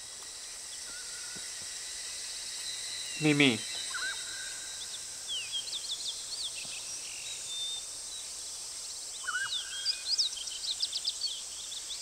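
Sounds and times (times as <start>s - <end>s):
steady high hiss: 0.0s - 12.0s
small birds chirping: 3.0s - 12.0s.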